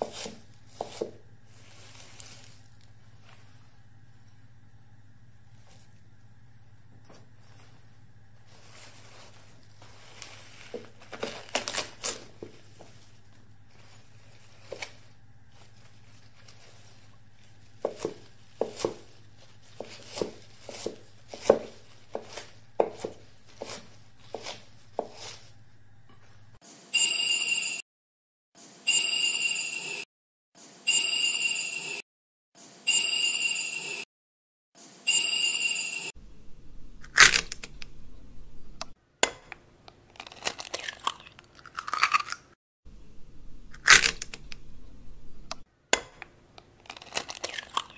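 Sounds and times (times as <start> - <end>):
knife chopping on wooden board: 0.0 - 1.3, 17.7 - 25.4, 45.9 - 46.4
bright ringing chime phrase: 26.9 - 27.8, 28.9 - 30.0, 30.9 - 32.0, 32.9 - 34.0, 35.1 - 36.1.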